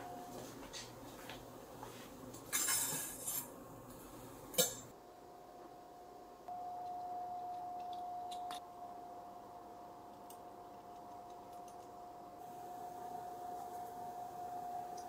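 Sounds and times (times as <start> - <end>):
steady high-pitched tone: 0.0 - 0.7, 6.5 - 10.6, 11.9 - 15.0.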